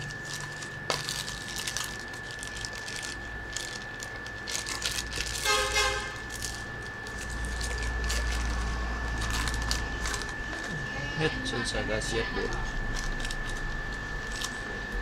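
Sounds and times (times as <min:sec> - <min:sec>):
steady high whine: 0:00.0 - 0:15.0
horn toot: 0:05.4 - 0:06.2.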